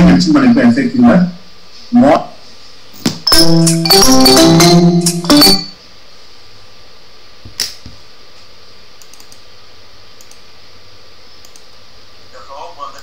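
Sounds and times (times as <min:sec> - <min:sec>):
background hiss: 0:00.0 - 0:13.0
short tune of notes: 0:03.3 - 0:05.8
computer mouse clicks: 0:09.0 - 0:09.5, 0:10.2 - 0:10.4, 0:11.4 - 0:11.8.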